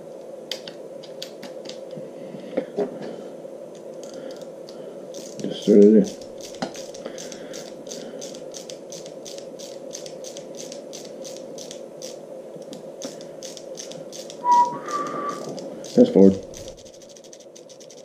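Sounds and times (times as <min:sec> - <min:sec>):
screwdriver clicking: 0:05.2 - 0:14.4, 0:15.0 - 0:18.0.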